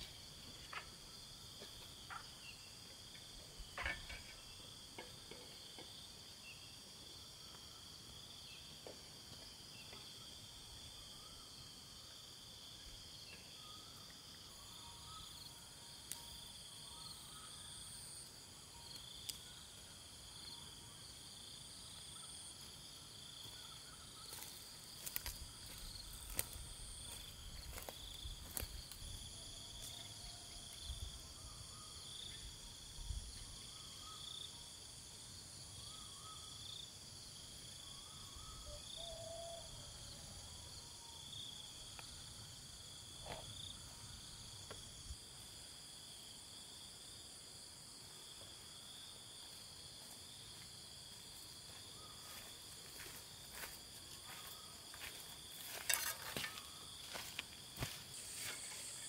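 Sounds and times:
insects chirring: 0:00.0 - 0:59.0
footsteps on dry stalks: 0:24.2 - 0:29.1, 0:51.2 - 0:59.0.

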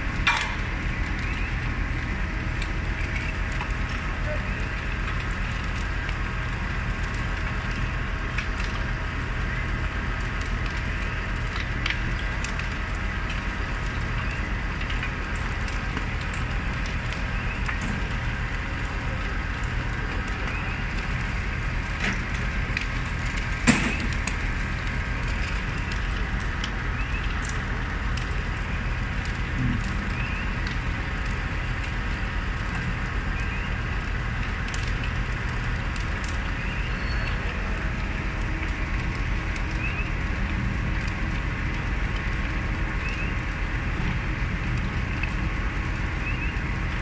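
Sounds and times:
fire crackling and popping: 0:00.0 - 0:47.0
low rumble of fire: 0:00.0 - 0:47.0
loud sharp crack: 0:23.6 - 0:24.4.

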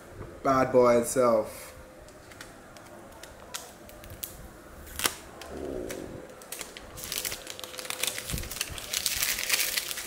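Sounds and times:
plastic film peeling: 0:02.1 - 0:10.0.

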